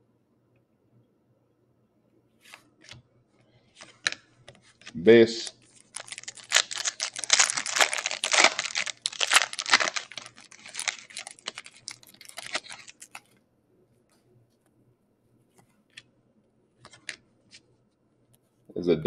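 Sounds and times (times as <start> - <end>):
foil wrapper tearing and crinkling: 5.7 - 13.3.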